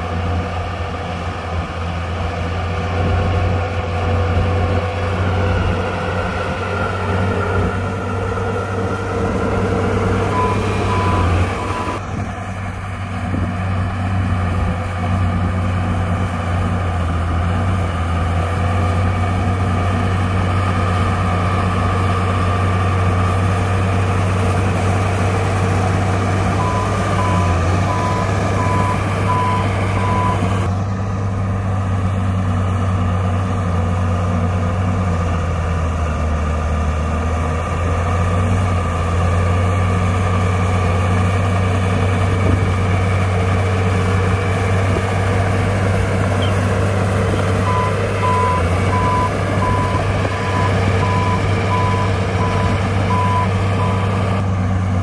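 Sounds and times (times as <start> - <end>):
diesel engine running under load: 0.0 - 55.0
reversing alarm beeps: 10.3 - 12.0, 26.6 - 30.5, 47.6 - 54.0.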